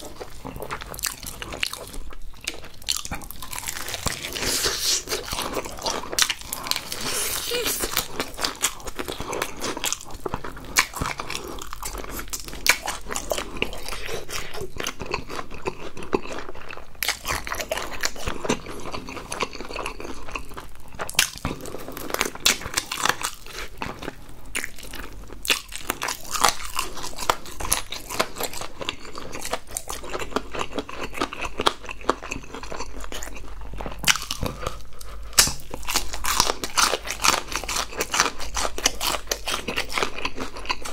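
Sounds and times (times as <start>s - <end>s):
crunching fried chicken: 0.0s - 40.9s
wet chewing: 0.0s - 40.9s.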